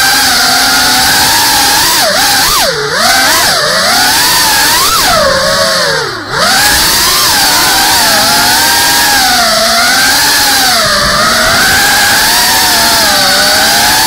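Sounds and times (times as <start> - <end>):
quadcopter motors whining: 0.0 - 14.0.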